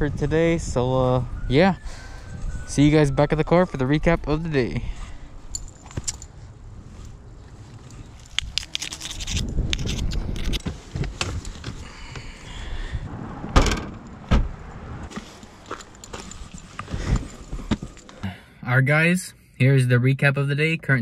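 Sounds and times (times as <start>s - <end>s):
camp chairs and gear clattering: 5.4s - 6.4s, 7.1s - 12.4s, 15.1s - 18.2s.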